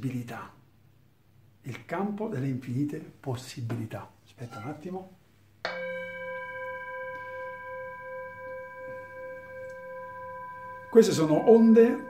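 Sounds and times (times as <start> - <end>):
singing bowl ringing: 5.7 - 12.0.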